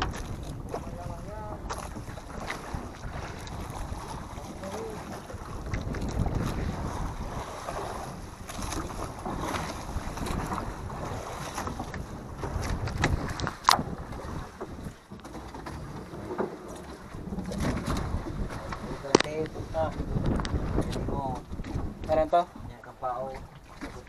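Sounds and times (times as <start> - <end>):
water washing against boat hull: 0.0 - 24.0
wind on the microphone: 0.0 - 24.0
knocks on wooden boat: 11.5 - 22.7.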